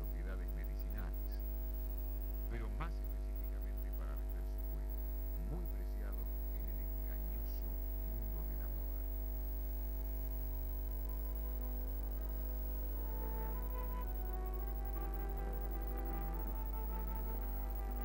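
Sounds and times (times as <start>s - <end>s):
electrical mains hum: 0.0s - 18.0s
faint plucked-string music: 10.4s - 18.0s.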